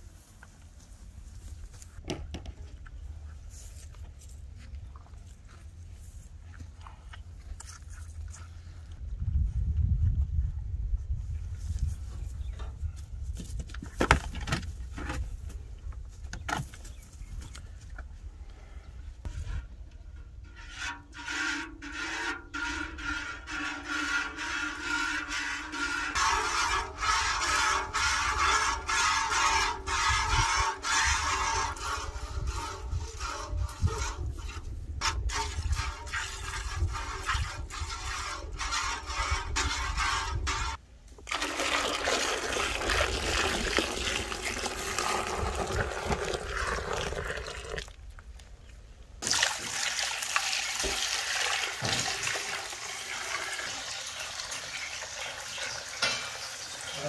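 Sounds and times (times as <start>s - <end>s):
milk squirting into metal pail: 41.2s - 48.1s, 49.2s - 57.0s.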